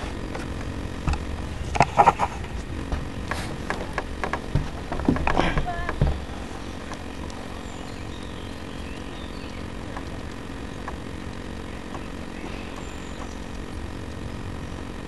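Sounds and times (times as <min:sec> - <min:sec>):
faint clicks: 0:06.7 - 0:07.4.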